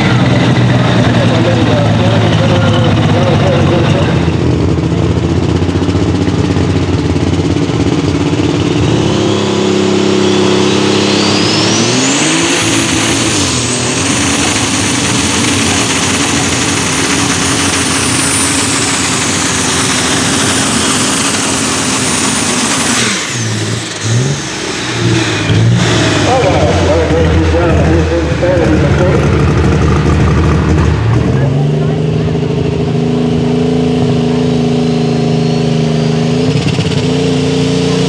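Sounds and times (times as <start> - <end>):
diesel tractor engine at full throttle: 0.0 - 38.0
high turbo whine: 0.0 - 38.0.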